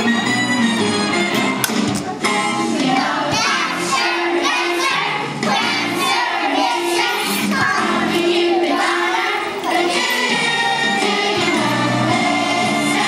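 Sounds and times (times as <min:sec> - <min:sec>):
music playing: 0:00.0 - 0:13.0
children singing: 0:02.6 - 0:13.0.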